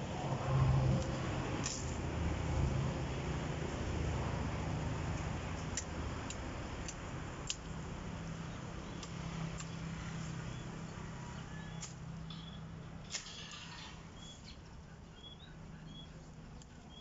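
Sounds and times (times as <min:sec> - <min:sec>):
machete chopping branches: 0:01.6 - 0:02.0.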